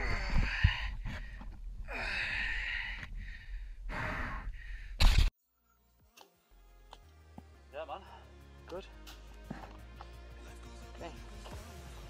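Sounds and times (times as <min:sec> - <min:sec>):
person breathing hard: 0:00.0 - 0:05.0, 0:09.4 - 0:10.0.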